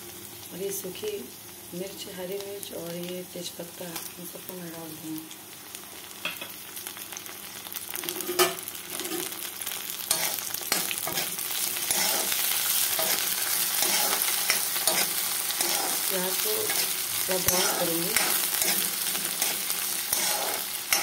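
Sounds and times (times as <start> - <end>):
food sizzling in hot oil: 0.0 - 21.0
spatula stirring and scraping: 10.1 - 21.0.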